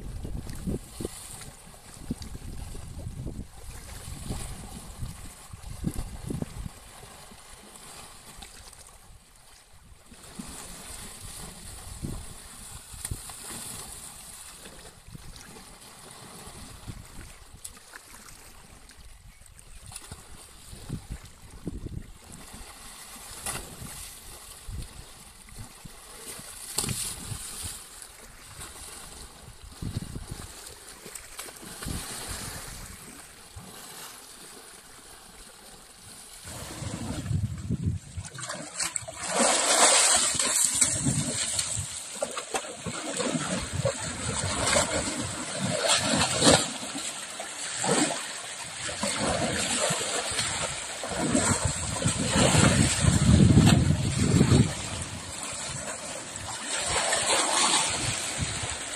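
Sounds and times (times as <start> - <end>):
elephant splashing in river water: 19.9 - 58.9.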